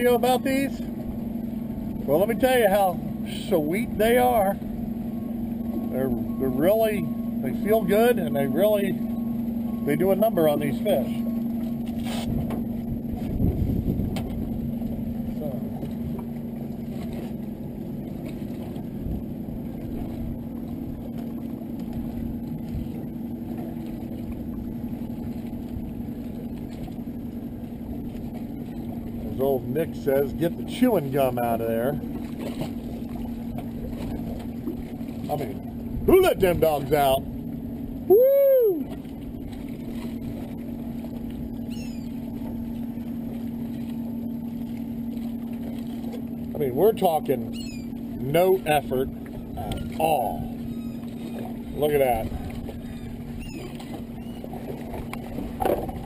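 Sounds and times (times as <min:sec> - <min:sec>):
boat motor idling: 0:00.0 - 0:56.0
low engine hum: 0:00.0 - 0:56.0
faint high squeak: 0:41.7 - 0:42.2, 0:47.5 - 0:48.0, 0:50.6 - 0:51.7, 0:52.8 - 0:54.5.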